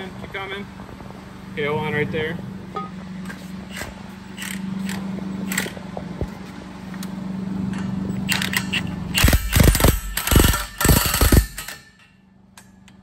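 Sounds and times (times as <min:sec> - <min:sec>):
steady low hum: 0:00.0 - 0:13.0
impact wrench hammering: 0:08.3 - 0:12.7.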